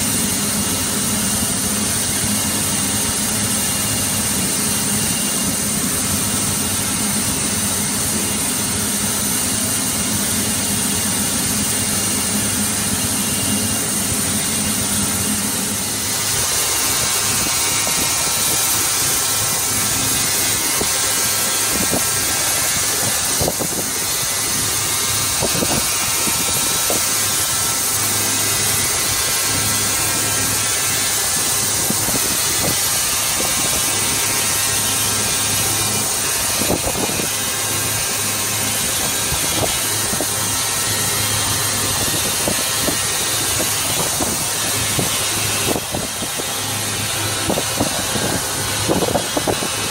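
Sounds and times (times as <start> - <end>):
industrial machine noise: 0.0 - 49.9.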